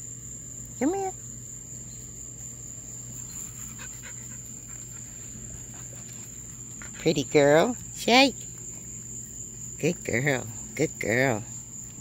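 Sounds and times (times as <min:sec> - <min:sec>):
crickets trilling: 0:00.0 - 0:12.0
dog panting: 0:03.2 - 0:07.1.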